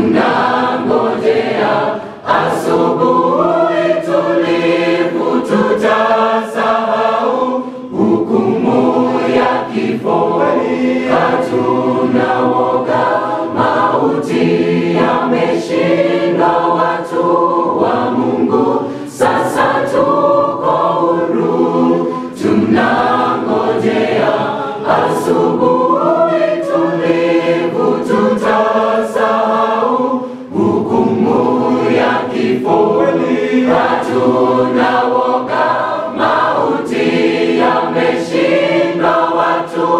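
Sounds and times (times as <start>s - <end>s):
vocal group singing gospel: 0.0s - 39.9s.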